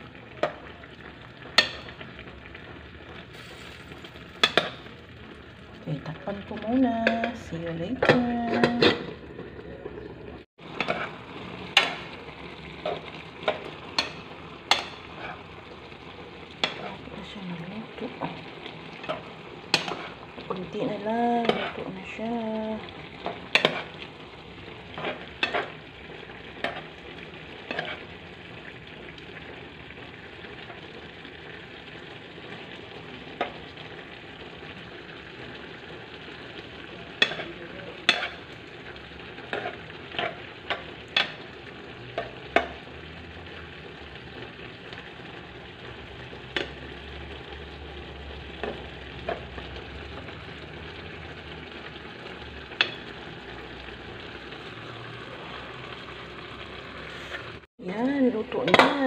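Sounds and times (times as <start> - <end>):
vegetables sizzling in a frying pan: 0.0 - 59.0.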